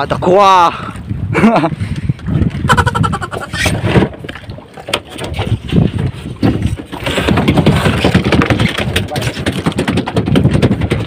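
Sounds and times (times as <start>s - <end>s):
sea noise: 0.0s - 8.1s
wind buffeting microphone: 0.0s - 11.0s
handling knocks and rustles: 3.7s - 11.0s.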